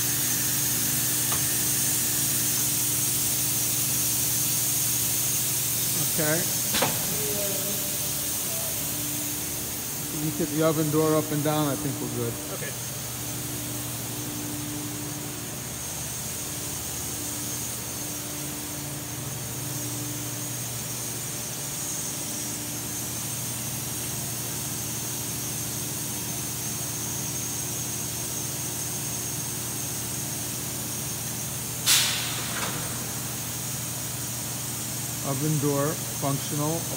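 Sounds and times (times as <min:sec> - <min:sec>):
machine humming: 0:00.0 - 0:24.6
constant hiss: 0:00.0 - 0:36.9.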